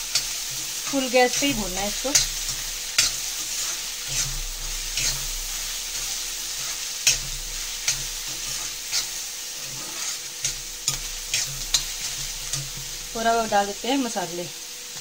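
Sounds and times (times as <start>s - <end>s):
steel spatula scraping pan: 0.0s - 13.1s
onions sizzling in hot oil: 0.0s - 15.0s.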